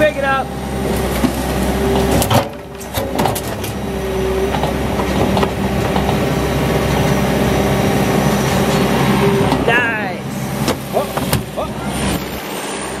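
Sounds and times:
diesel engine running: 0.0 - 13.0
junk clattering into steel dumpster: 1.2 - 3.8.

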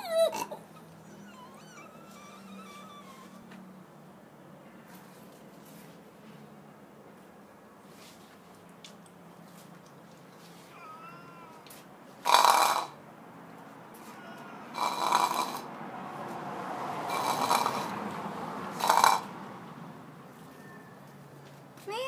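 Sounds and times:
cat meowing: 0.0 - 3.5, 10.6 - 11.9, 14.0 - 15.6.

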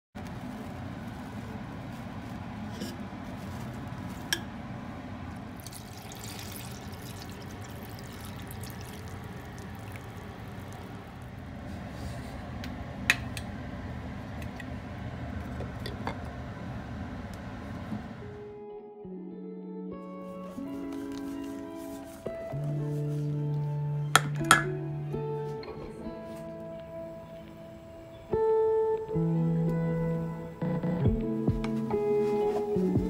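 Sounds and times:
steady low hum: 0.2 - 18.7
water pouring and splashing: 5.6 - 11.2.

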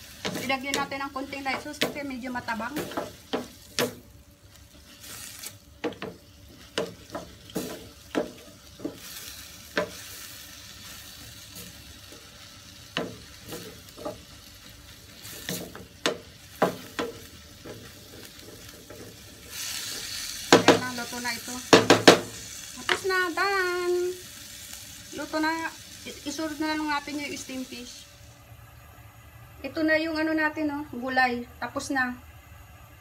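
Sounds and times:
vegetables sizzling: 0.0 - 28.6
spatula scraping frying pan: 15.2 - 20.7.

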